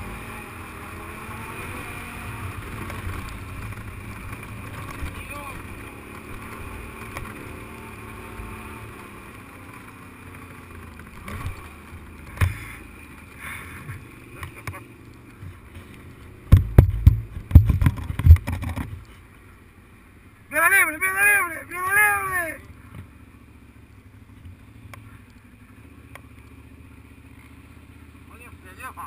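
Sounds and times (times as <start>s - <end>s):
off-road vehicle engine: 0.0s - 29.0s
loud low thumps and jolts: 16.5s - 18.8s
knocks: 16.5s - 19.0s.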